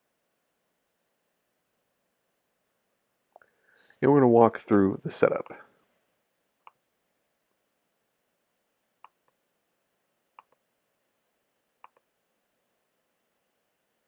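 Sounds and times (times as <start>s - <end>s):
computer mouse clicks: 9.0s - 9.4s, 10.4s - 10.6s, 11.8s - 12.1s.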